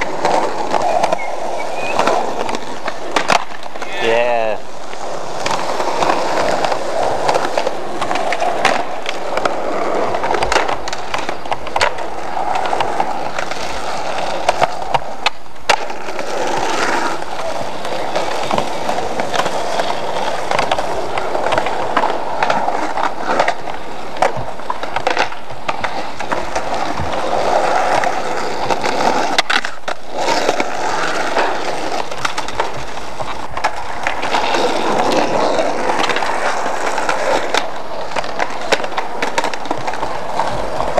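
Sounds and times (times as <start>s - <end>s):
skateboard clacking on ground: 0.0s - 40.9s
skateboard wheels on rough concrete: 0.0s - 40.9s.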